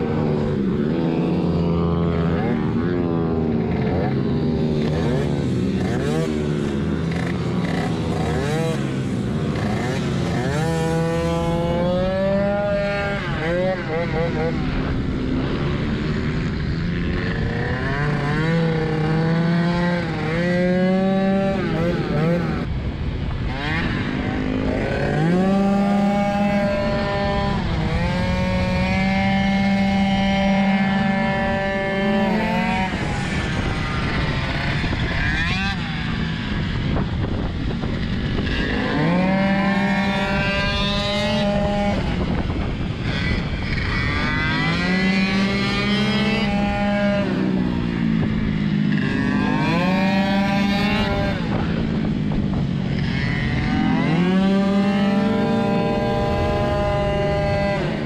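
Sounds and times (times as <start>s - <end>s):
scooter engine revving: 0.0s - 58.0s
wind rush: 22.2s - 53.6s.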